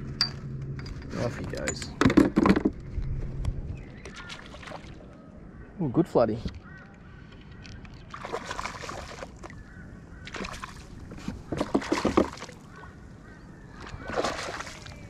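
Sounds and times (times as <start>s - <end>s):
fish splashing at the surface: 8.1s - 9.6s, 10.2s - 12.7s, 13.8s - 15.0s.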